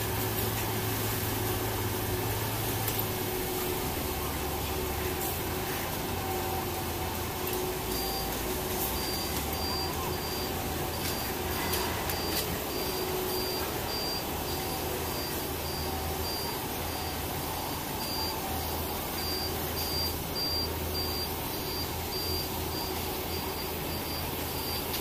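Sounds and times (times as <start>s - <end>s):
low engine hum: 0.0s - 25.0s
short high alarm beeps: 7.8s - 25.0s.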